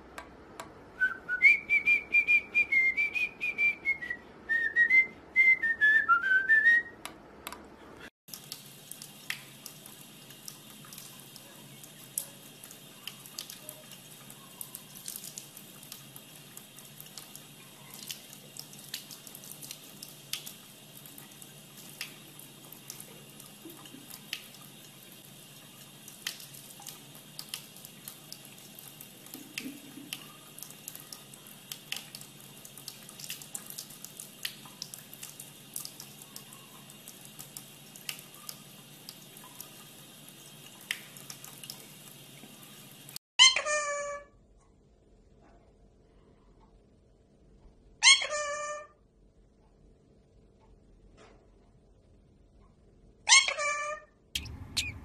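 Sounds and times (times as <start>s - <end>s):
person whistling: 1.0s - 7.0s
water running from faucet: 8.3s - 43.2s, 54.4s - 55.0s.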